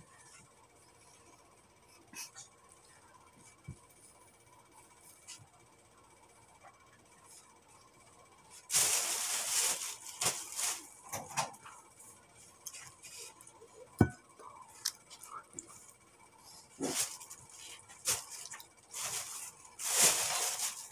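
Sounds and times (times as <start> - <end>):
close eating noises: 10.2 - 19.8.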